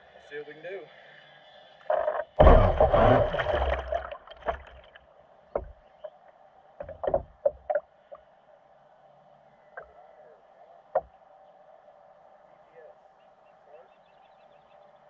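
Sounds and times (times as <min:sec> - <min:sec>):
water lapping against boat hull: 0:01.8 - 0:05.0, 0:05.6 - 0:06.2, 0:06.8 - 0:08.2
loud thump and rumble: 0:02.4 - 0:04.7
short knocks: 0:05.6 - 0:05.8, 0:06.8 - 0:07.8.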